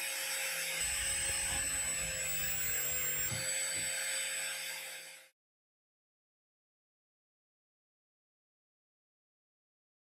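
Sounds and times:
rotary tool high whine: 0.0 - 5.3.

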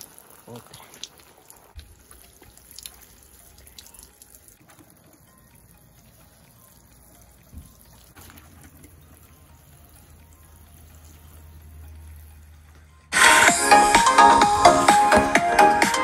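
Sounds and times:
watering can sprinkling water: 0.0 - 12.4.

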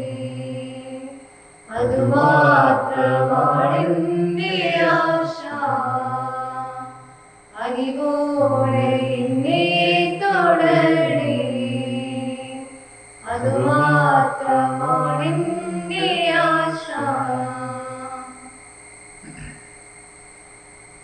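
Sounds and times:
hymn being sung: 0.0 - 18.6.

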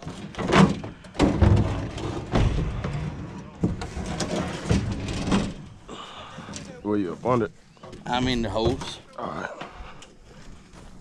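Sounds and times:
knocks and bangs: 0.0 - 5.8
low voices: 5.8 - 10.6.

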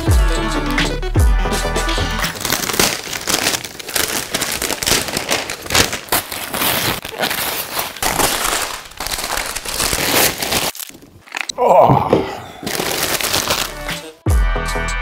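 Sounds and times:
wrapping paper tearing: 2.2 - 11.6, 12.6 - 14.2.

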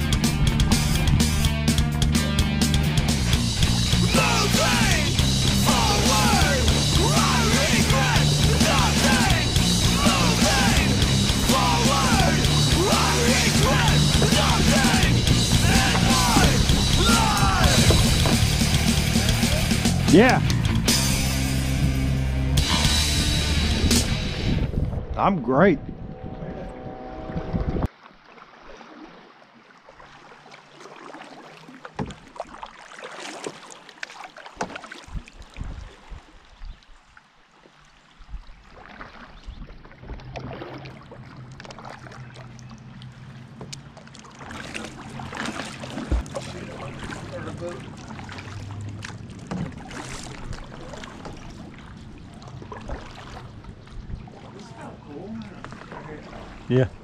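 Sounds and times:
water splashing from paddle: 0.0 - 22.0, 27.3 - 57.0
paddle knocking against canoe: 3.0 - 20.0, 31.8 - 35.8, 43.2 - 54.4
light knocks on canoe: 15.6 - 19.1, 31.9 - 32.3, 34.6 - 34.8, 49.0 - 50.2.

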